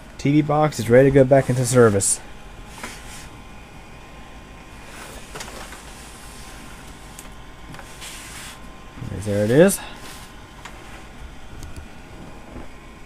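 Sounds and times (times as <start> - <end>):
room noise hum and hiss: 0.0 - 13.0
hand brushing computer case: 1.2 - 3.4, 4.8 - 11.1.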